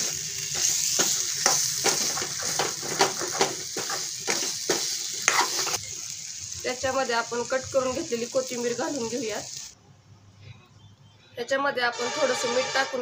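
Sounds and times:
food sizzling in a pan: 0:00.0 - 0:09.8
metal spoon scraping a pan: 0:11.9 - 0:13.0.

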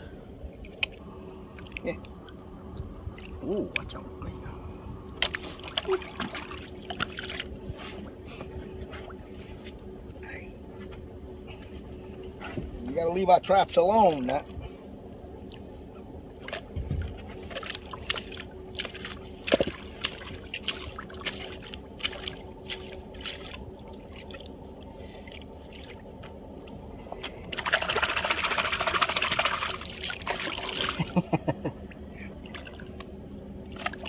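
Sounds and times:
steady low hum: 0:00.0 - 0:34.0
water splashing: 0:17.4 - 0:24.5, 0:27.5 - 0:31.2.

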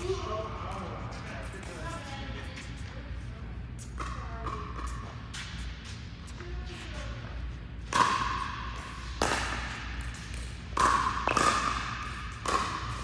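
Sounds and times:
paddles striking balls: 0:07.8 - 0:13.0.

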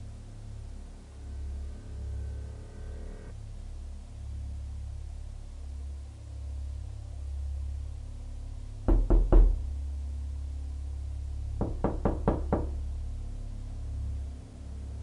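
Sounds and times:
low steady drone: 0:00.0 - 0:15.0
knocking: 0:08.9 - 0:09.7, 0:11.6 - 0:12.8.

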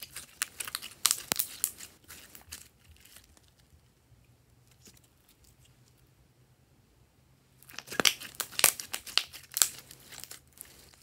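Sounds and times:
slime squeezed clicking and crackling: 0:00.0 - 0:01.9, 0:07.6 - 0:10.7.

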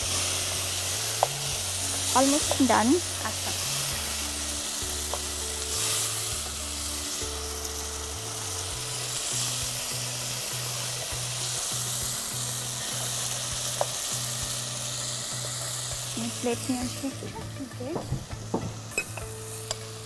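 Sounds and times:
background music: 0:00.0 - 0:20.0
meat sizzling in a pot: 0:00.0 - 0:20.0.

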